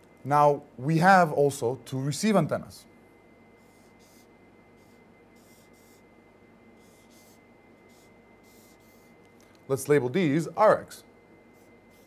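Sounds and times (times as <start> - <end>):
marker scratching on paper: 3.6 - 6.0, 6.8 - 9.1, 11.5 - 12.0.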